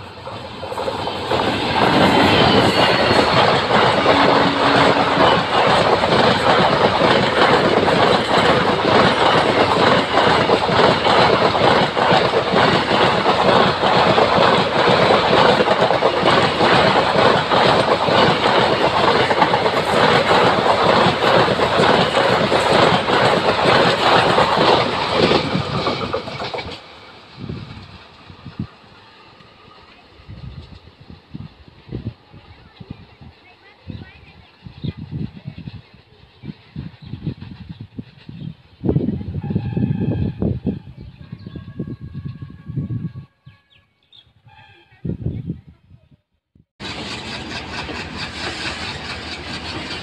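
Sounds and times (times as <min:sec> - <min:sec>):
clickety-clack over rail joints: 0:00.0 - 0:26.9, 0:46.8 - 0:50.0
train wheels rumbling on rails: 0:00.0 - 0:42.2, 0:46.8 - 0:50.0.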